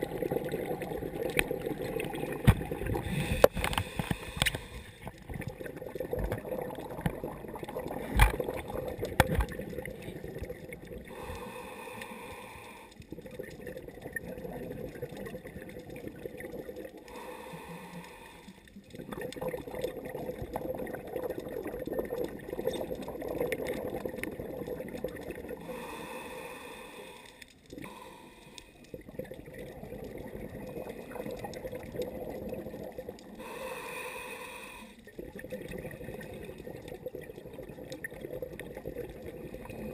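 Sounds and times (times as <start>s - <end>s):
bubbling exhalation underwater: 0.0s - 4.0s, 5.0s - 11.3s, 13.1s - 17.1s, 18.9s - 26.2s, 28.9s - 33.6s, 35.1s - 39.9s.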